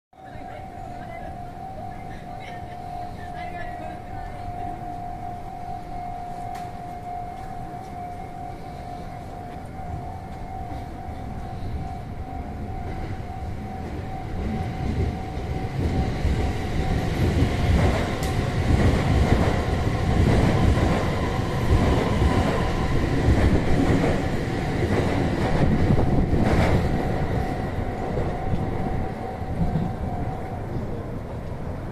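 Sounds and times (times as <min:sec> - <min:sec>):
level crossing bell ringing: 0:00.2 - 0:17.2
train rumble and wheel noise: 0:00.2 - 0:31.9.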